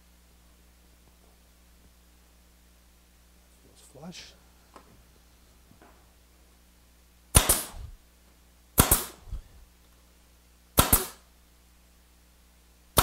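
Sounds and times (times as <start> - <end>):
nail gun firing: 7.3 - 7.9, 8.8 - 9.4, 10.8 - 11.3.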